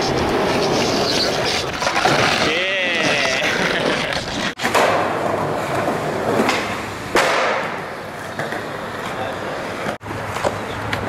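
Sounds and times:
skateboard wheels rolling on pavement: 0.0s - 11.0s
skateboard hitting the ground: 1.3s - 9.2s.

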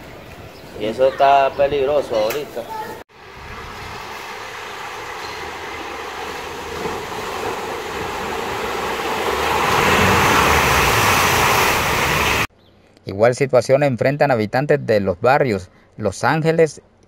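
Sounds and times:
vehicle engine rumble: 3.1s - 12.5s.

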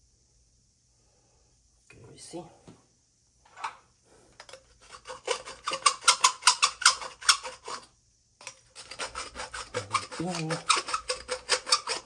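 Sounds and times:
abrasive cloth scraping copper pipe: 4.4s - 7.9s, 8.7s - 12.0s.

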